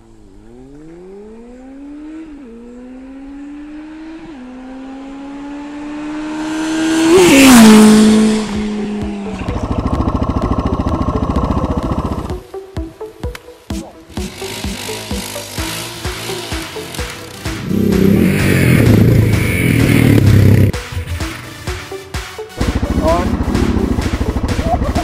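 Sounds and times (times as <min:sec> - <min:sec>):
motorcycle engine accelerating: 0:00.0 - 0:12.4, 0:13.8 - 0:21.6, 0:22.6 - 0:25.0
motorcycle passing by: 0:00.0 - 0:12.4, 0:14.0 - 0:21.6, 0:22.6 - 0:25.0
motorcycle engine chugging: 0:07.0 - 0:12.4, 0:14.1 - 0:21.4, 0:22.6 - 0:25.0.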